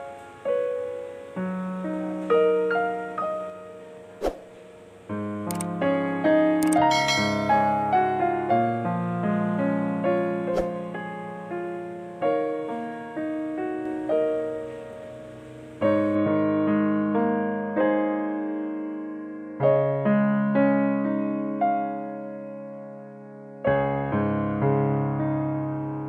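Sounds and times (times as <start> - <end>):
gentle piano melody: 0.0 - 26.0
brief click: 5.5 - 5.7, 6.6 - 7.3.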